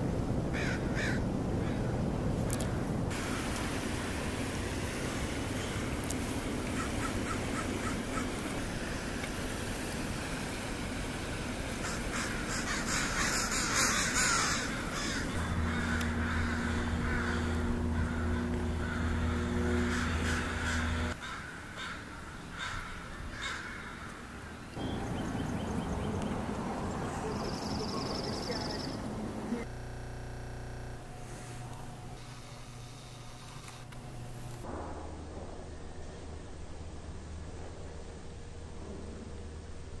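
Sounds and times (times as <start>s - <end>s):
low mechanical drone: 0.0s - 40.0s
crows cawing: 0.5s - 2.0s, 6.7s - 8.4s, 11.8s - 24.4s.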